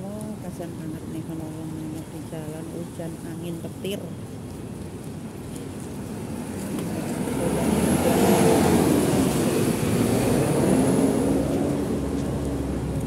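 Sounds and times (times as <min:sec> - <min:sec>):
vehicle engine passing: 0:06.2 - 0:13.0.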